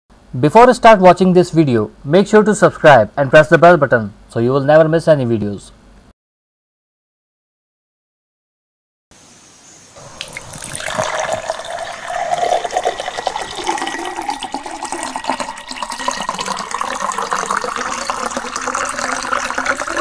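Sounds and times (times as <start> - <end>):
water pouring into a glass: 10.0 - 20.0.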